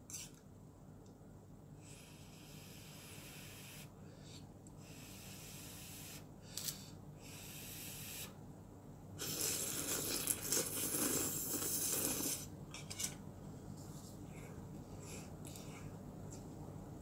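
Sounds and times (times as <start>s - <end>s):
person breathing: 1.8s - 8.3s, 14.2s - 16.0s
person slurping noodles: 9.2s - 12.5s.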